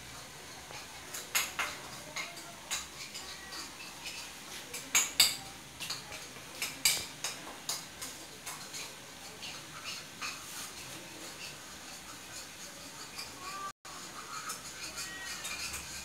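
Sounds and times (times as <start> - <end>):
kitchenware clinking: 0.0 - 16.0.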